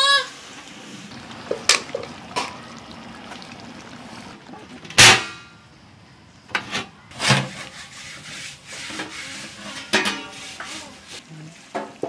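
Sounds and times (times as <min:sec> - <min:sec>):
pot lid scraping and clinking: 0:06.6 - 0:10.9.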